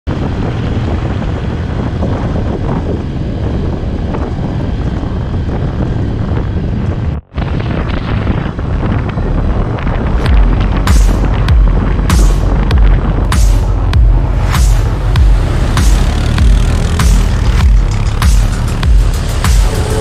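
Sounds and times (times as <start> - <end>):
wind buffeting microphone: 0.1 - 20.0
quad bike engine running: 14.9 - 20.0.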